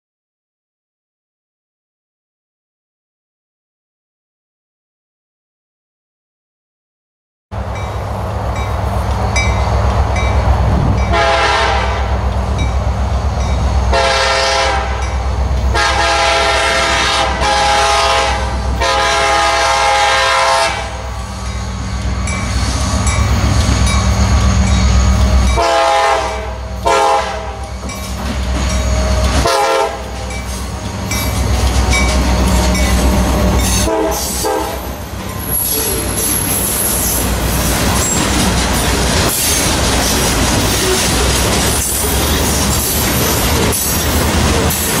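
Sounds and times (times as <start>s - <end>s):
low rumble of train: 7.5s - 45.0s
locomotive air horn blasts: 11.1s - 12.2s, 13.9s - 21.2s, 25.6s - 27.7s, 29.4s - 30.2s, 33.8s - 34.9s
wheels clicking over rail joints: 35.2s - 45.0s.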